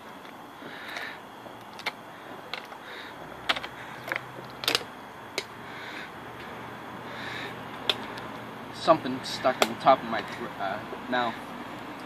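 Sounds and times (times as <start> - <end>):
soft breathy puffs: 5.5 - 8.3.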